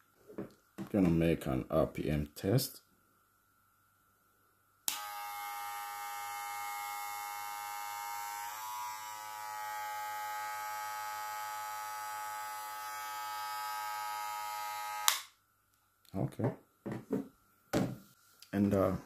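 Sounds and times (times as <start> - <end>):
hair clipper switch click: 4.9 - 5.1, 15.0 - 15.3
hair clipper humming: 4.9 - 15.3.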